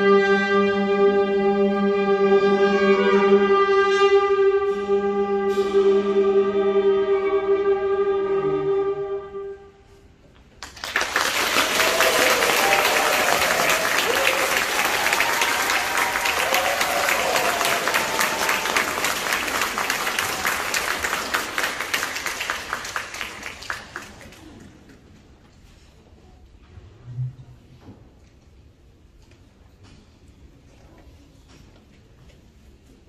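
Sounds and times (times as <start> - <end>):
audience applause: 10.6 - 24.8.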